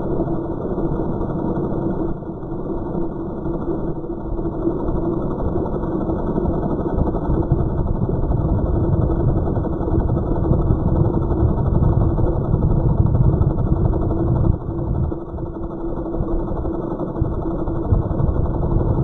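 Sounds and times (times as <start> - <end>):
quadcopter propellers humming: 4.5 - 19.0
low rumble: 7.5 - 19.0.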